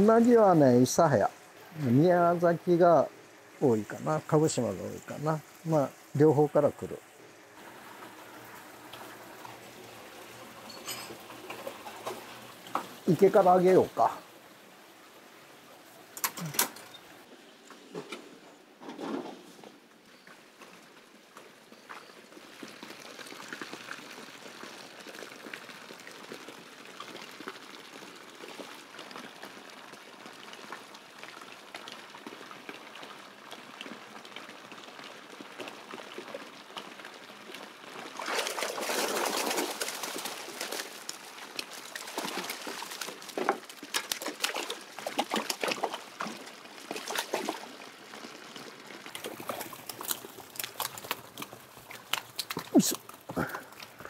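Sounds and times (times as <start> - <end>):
water trickling: 0.0 - 17.3, 20.1 - 54.0
net splashing through water: 38.0 - 48.4, 49.0 - 54.0
fish splashing and knocking: 38.2 - 47.8, 49.2 - 54.0.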